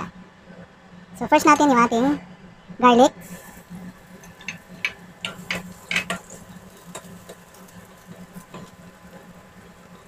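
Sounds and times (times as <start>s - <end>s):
low steady hum: 0.0s - 10.0s
spatula tapping and scraping wok: 4.1s - 10.0s.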